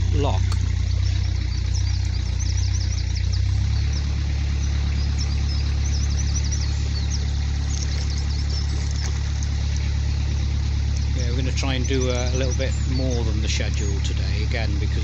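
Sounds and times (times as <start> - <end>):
birds chirping: 0.0 - 15.0
boat engine humming: 0.0 - 15.0.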